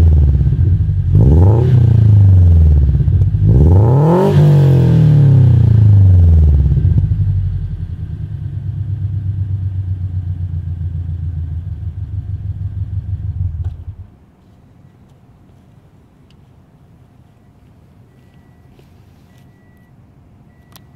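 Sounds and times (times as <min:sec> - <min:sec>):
car engine revving and idling: 0:00.0 - 0:14.1.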